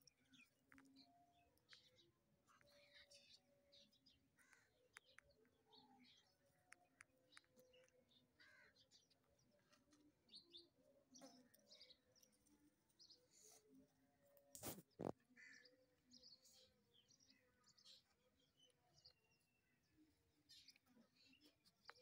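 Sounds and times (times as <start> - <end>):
soft clicks: 0.0 - 3.3, 4.5 - 5.6, 6.6 - 8.1.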